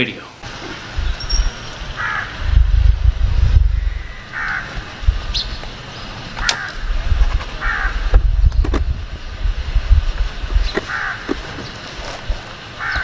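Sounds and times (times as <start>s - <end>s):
bird calling: 0.4s - 2.5s, 3.6s - 6.9s, 7.5s - 8.7s, 10.5s - 13.0s
low rumble: 0.9s - 11.6s
sharp click: 6.4s - 6.8s.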